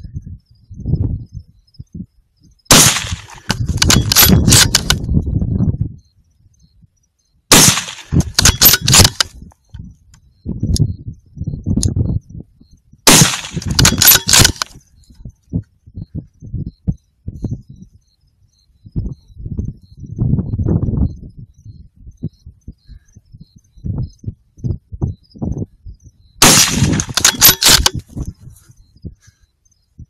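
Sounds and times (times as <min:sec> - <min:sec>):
rifle shots: 0:02.7 - 0:05.0, 0:07.5 - 0:09.3, 0:13.1 - 0:14.8, 0:26.4 - 0:28.0.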